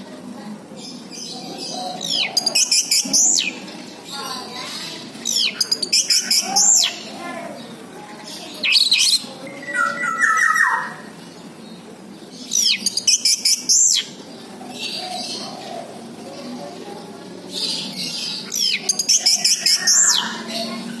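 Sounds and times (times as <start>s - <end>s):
bird singing whistled phrases: 8.6s - 11.0s.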